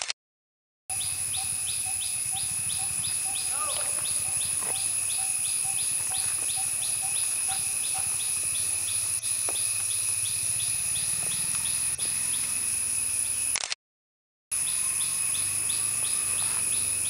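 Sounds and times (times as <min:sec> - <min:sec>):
high-pitched insect drone: 0:00.9 - 0:13.6, 0:14.5 - 0:17.0
repeated chirp: 0:00.9 - 0:13.7.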